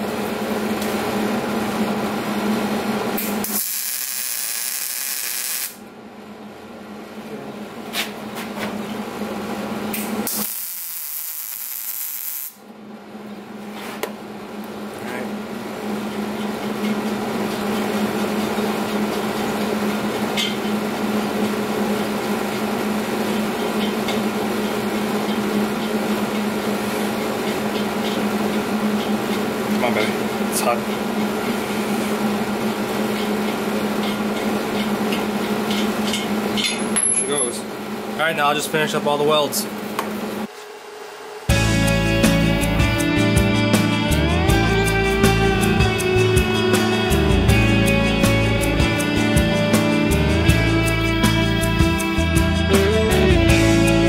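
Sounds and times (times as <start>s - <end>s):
welding arc crackling and hissing: 3.2s - 5.8s, 10.0s - 12.6s.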